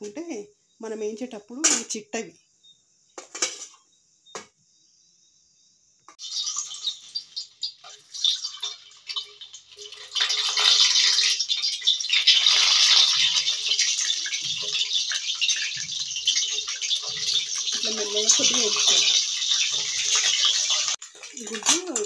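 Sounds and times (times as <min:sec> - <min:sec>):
oil sizzling in a pan: 0:06.1 - 0:22.0.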